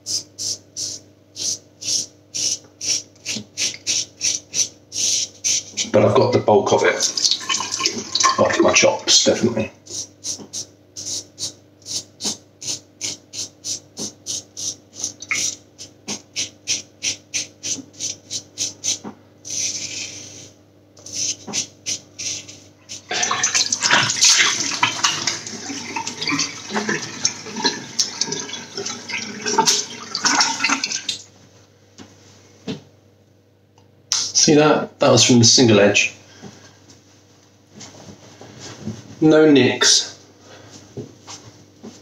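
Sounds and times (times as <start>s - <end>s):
tap running and water splashing: 7.0s - 8.9s, 23.1s - 31.2s.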